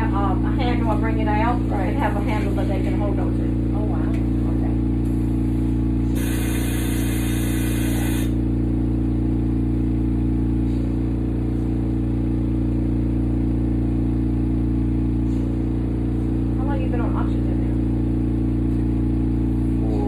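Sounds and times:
low mechanical hum: 0.0s - 20.0s
hiss: 6.2s - 8.4s.

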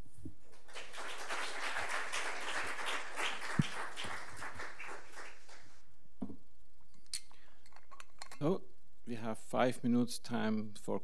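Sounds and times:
audience applauding: 0.6s - 5.8s.

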